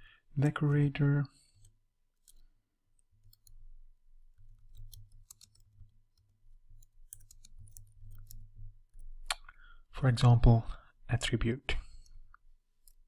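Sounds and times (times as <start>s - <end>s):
keyboard typing: 1.6s - 3.7s, 4.3s - 9.1s.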